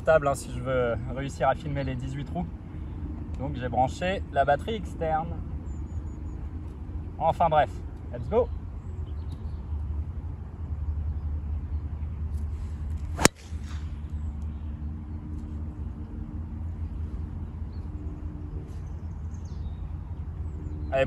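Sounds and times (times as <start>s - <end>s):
steady low rumble: 0.0s - 21.0s
golf club striking ball: 13.2s - 14.0s.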